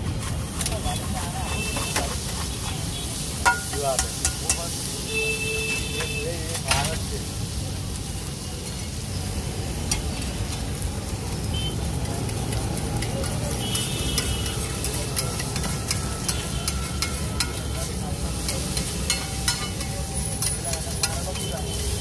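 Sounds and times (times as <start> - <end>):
spatula scraping and tapping griddle: 0.0 - 4.9, 5.6 - 7.2, 9.8 - 22.0
food sizzling in butter: 0.0 - 22.0.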